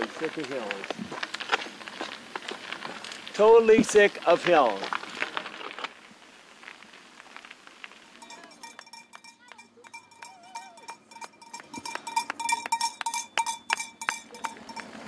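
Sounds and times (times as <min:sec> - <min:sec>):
cowbells clanging: 0:08.2 - 0:15.0.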